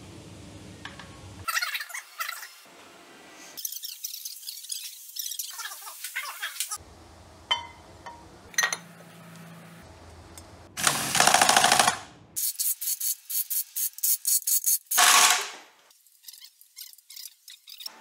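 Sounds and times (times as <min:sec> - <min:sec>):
impact wrench hammering: 0:10.8 - 0:12.0, 0:14.9 - 0:15.6.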